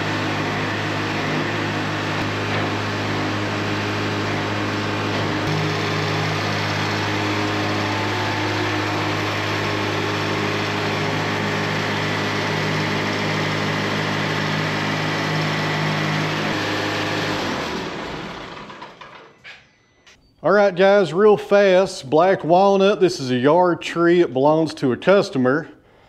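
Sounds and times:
sawmill engine running: 0.0 - 19.6.

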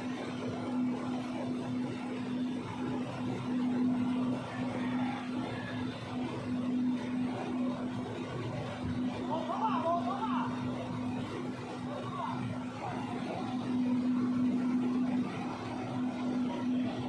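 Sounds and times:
motor humming steadily: 0.0 - 17.0.

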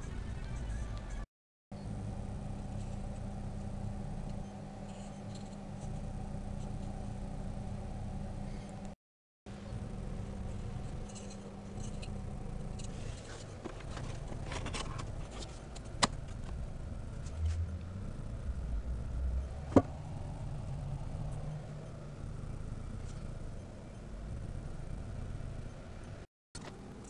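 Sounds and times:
steady low hum: 0.0 - 27.0
light clicks and scrapes: 10.9 - 16.5.

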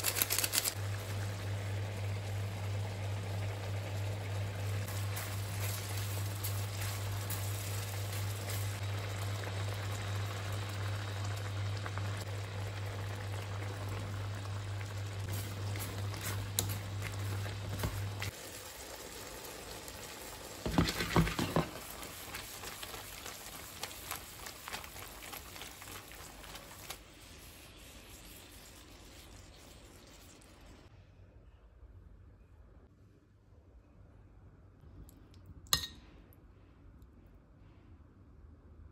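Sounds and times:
food sizzling in a frying pan: 0.0 - 30.9
loud clatter in pan: 20.6 - 22.2.

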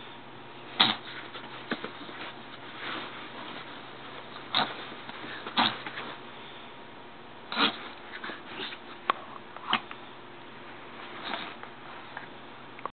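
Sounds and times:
dog sniffing and snuffling: 0.6 - 6.6, 7.5 - 9.8, 10.9 - 12.2.

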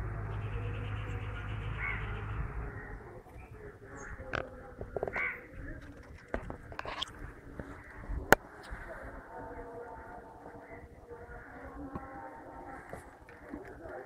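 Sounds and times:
harsh animal calls: 0.0 - 8.3.

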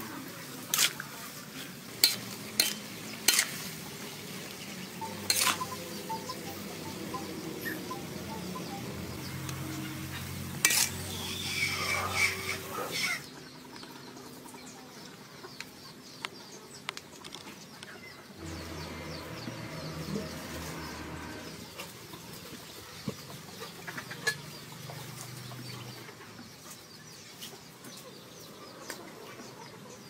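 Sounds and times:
chickens clucking: 0.0 - 30.0
small birds chirping: 0.1 - 30.0
low hum: 18.4 - 21.8.

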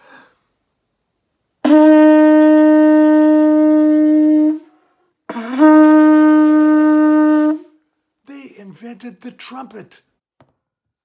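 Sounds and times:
conch shell horn blast: 1.6 - 7.8.

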